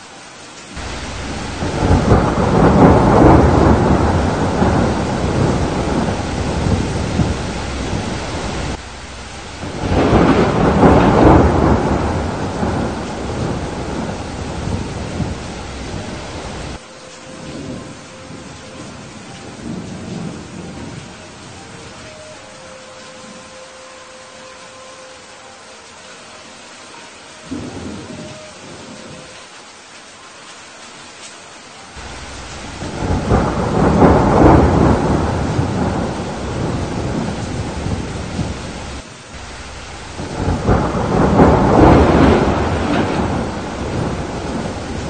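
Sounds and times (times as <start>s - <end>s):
heavy rain: 0.0s - 45.0s
rolls of thunder: 0.8s - 16.8s, 32.0s - 39.0s, 39.6s - 45.0s.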